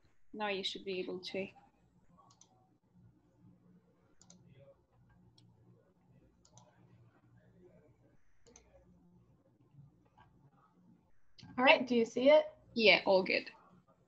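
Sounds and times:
computer mouse clicks: 0:02.2 - 0:02.5, 0:04.2 - 0:04.4, 0:06.4 - 0:06.7, 0:08.4 - 0:08.8.

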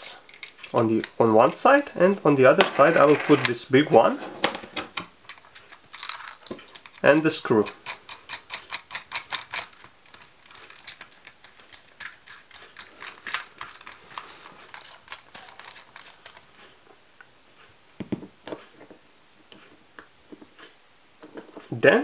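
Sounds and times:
nut clicking on threaded screw: 0:05.3 - 0:14.2.

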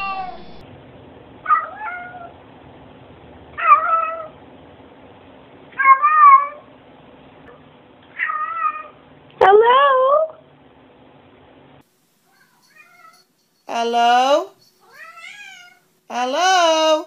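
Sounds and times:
cat meowing: 0:00.0 - 0:00.5, 0:01.5 - 0:02.3, 0:05.8 - 0:06.6, 0:08.1 - 0:09.0, 0:14.8 - 0:15.9.

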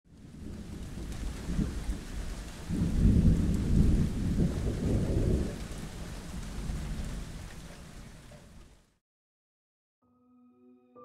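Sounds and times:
steady rain: 0:00.1 - 0:09.0
rolling thunder: 0:00.2 - 0:08.7.

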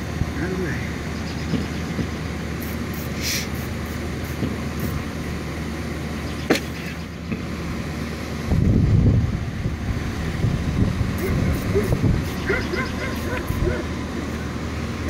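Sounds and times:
honeybees droning: 0:09.3 - 0:15.0.

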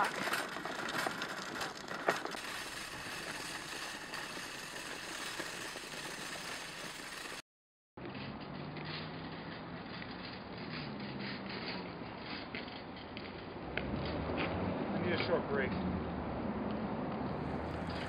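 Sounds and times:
shopping cart rattling: 0:00.0 - 0:07.4.

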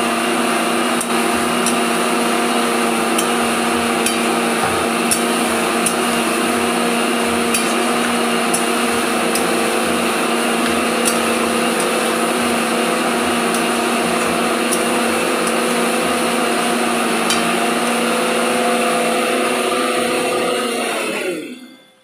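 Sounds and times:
electric motor humming: 0:00.0 - 0:21.6
spatula clinking against wok: 0:03.1 - 0:16.5.

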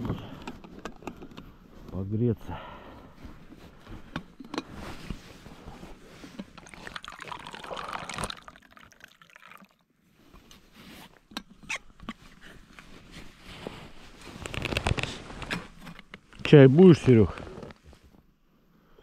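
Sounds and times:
tea pouring into a cup: 0:06.6 - 0:09.8.

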